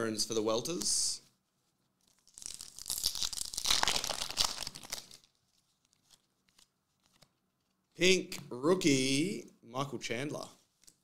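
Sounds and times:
foil wrapper tearing and crinkling: 2.1s - 6.2s.

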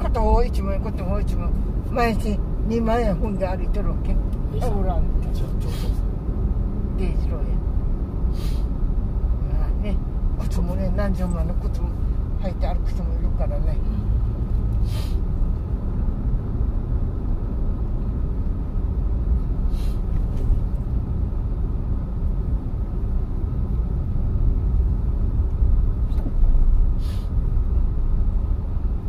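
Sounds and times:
car road noise rumble: 0.0s - 29.0s
brief hisses: 8.3s - 8.7s, 14.8s - 15.2s, 27.0s - 27.4s.

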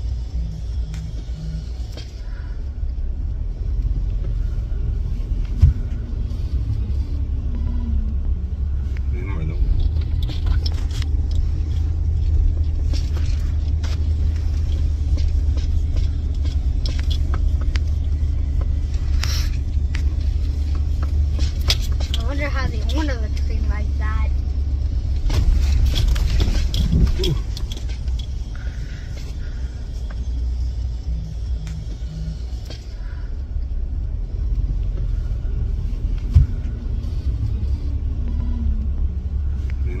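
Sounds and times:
vehicle rumbling over rough ground: 0.0s - 40.0s
knocks and rattles: 25.1s - 28.4s.

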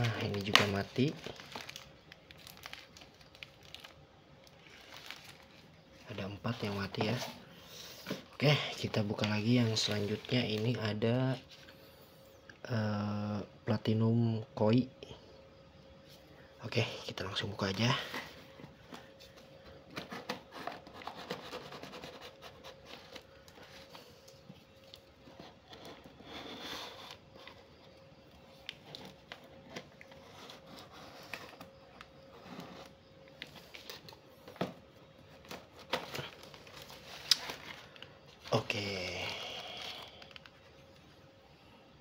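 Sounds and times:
tape tearing: 35.4s - 37.8s.

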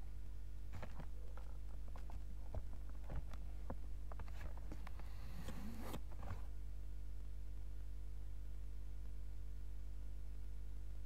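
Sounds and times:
low electrical hum: 0.0s - 11.0s
cloth rustling: 0.7s - 6.5s.

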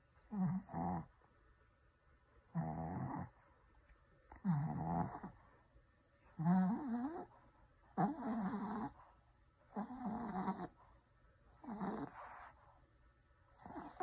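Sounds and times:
dog groaning: 0.3s - 1.2s, 2.5s - 3.4s, 4.3s - 5.4s, 6.3s - 7.3s, 7.9s - 9.0s, 9.7s - 10.8s, 11.5s - 12.5s, 13.5s - 14.0s.

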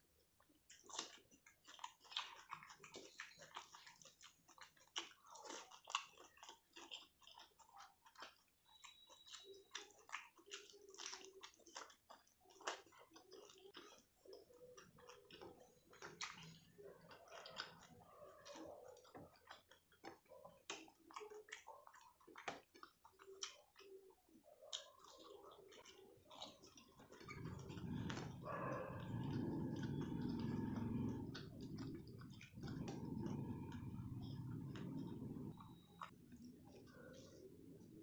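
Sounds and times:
person chewing food: 0.0s - 38.0s.

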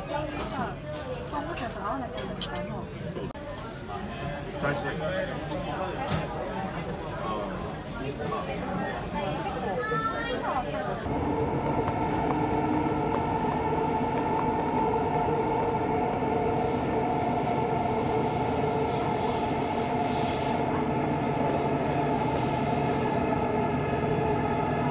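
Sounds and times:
wheels rumbling on track: 11.1s - 20.0s.

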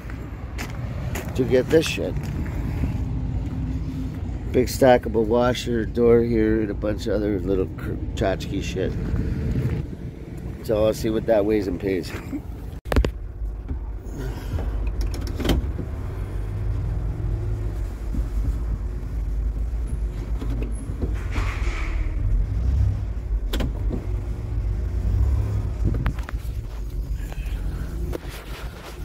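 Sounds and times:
car engine and road rumble: 0.0s - 29.0s
knocks and rattles: 17.8s - 24.3s.

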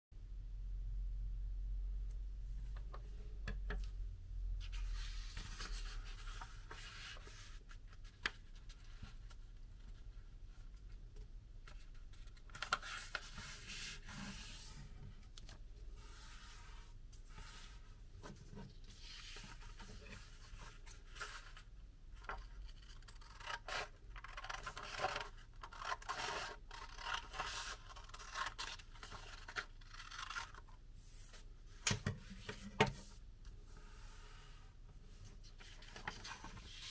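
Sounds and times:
paper rustling and creasing: 4.6s - 10.9s, 11.6s - 34.3s, 35.1s - 36.9s
scissors cutting paper: 22.6s - 28.8s.

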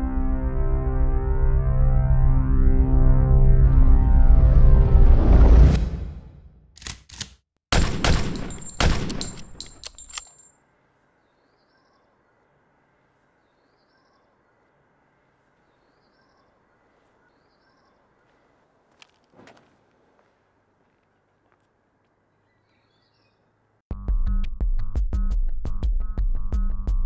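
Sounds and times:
birds chirping: 10.6s - 19.3s, 19.9s - 23.8s
footsteps on pavement: 16.8s - 22.8s.

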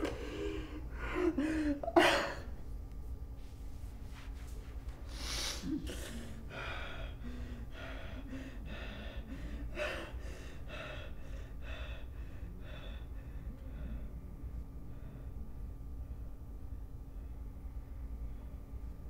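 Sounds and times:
gasping breaths: 5.1s - 14.1s.

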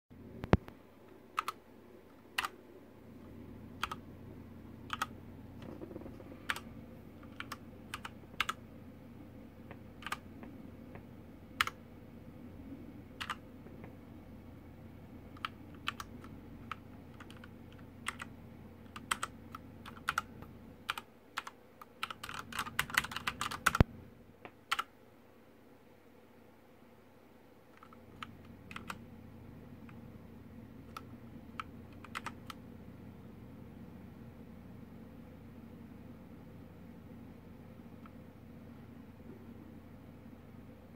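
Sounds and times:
mechanical keyboard keys clicking: 1.4s - 1.6s, 2.4s - 2.6s, 3.8s - 4.0s, 4.9s - 6.6s, 7.2s - 8.6s, 9.7s - 10.2s, 11.6s - 11.8s, 13.2s - 13.9s, 15.3s - 23.9s, 24.7s - 24.9s, 27.8s - 29.0s, 30.9s - 32.6s.

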